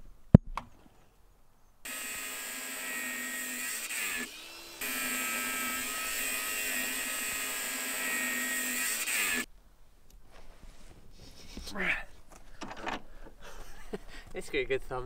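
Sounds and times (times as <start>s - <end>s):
power tool motor whining: 1.9s - 9.5s.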